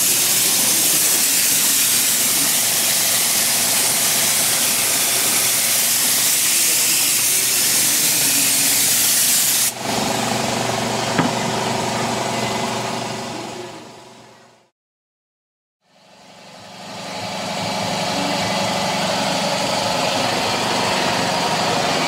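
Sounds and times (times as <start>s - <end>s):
air cleaning gun hissing: 0.0s - 9.8s.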